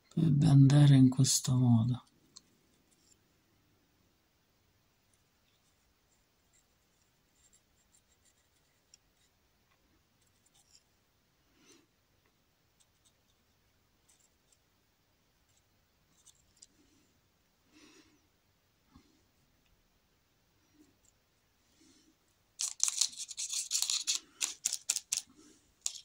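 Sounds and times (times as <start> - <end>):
paintbrush scratching on canvas: 5.5 - 9.3.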